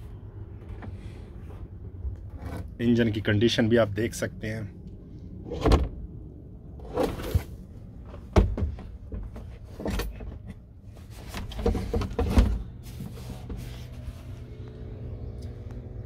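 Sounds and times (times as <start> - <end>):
low steady hum: 0.0 - 15.9
engine cover knocks and thumps: 6.9 - 12.8.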